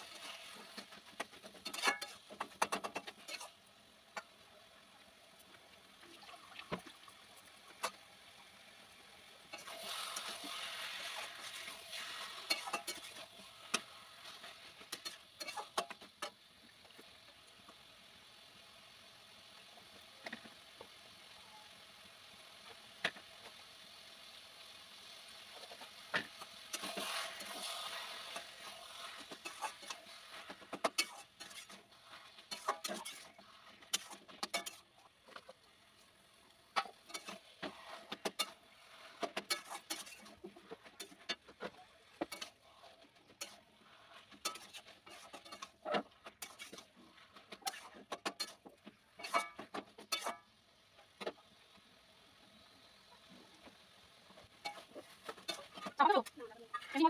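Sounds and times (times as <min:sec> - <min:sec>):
metal spatula scraping wok: 0:00.0 - 0:04.3, 0:09.4 - 0:16.5, 0:25.4 - 0:50.5, 0:54.2 - 0:57.0
leaves sizzling in a wok: 0:00.0 - 0:57.0.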